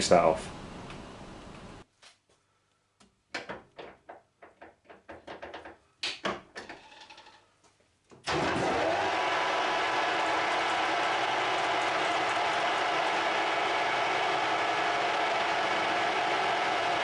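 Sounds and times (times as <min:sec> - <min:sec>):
lathe motor running: 0:08.3 - 0:17.0.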